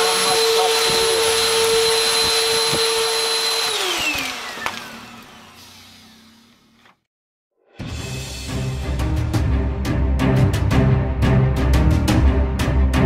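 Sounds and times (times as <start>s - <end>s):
vacuum cleaner running: 0.0s - 6.9s.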